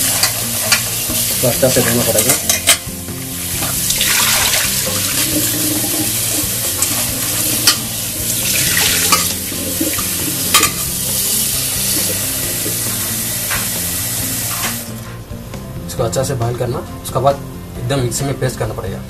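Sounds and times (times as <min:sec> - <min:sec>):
tap water splashing into pot: 0:03.6 - 0:06.9
pot clicking: 0:03.6 - 0:11.3.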